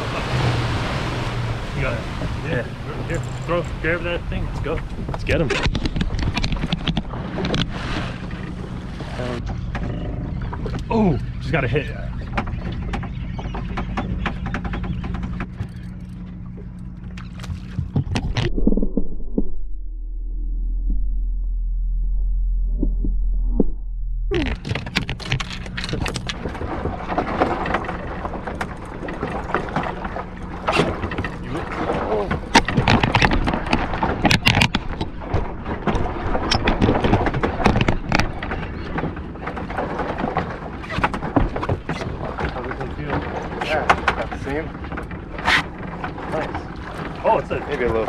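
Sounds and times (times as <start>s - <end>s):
wind buffeting microphone: 0.0s - 15.8s
outboard engine idling: 0.0s - 18.4s, 24.3s - 48.0s
sharp clicks and knocks: 3.1s - 7.7s, 12.2s - 19.5s, 24.3s - 47.2s.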